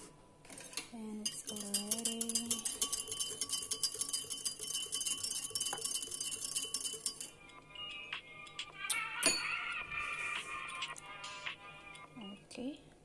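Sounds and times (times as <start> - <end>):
whisk clinking against glass: 0.6 - 7.3.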